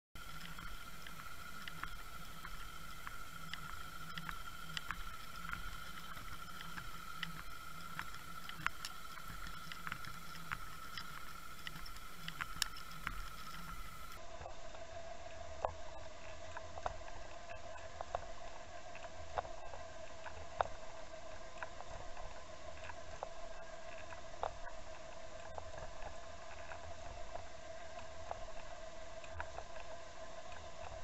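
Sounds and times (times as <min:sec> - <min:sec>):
sharp ticks: 0:00.2 - 0:14.2
underwater high whine: 0:00.2 - 0:31.0.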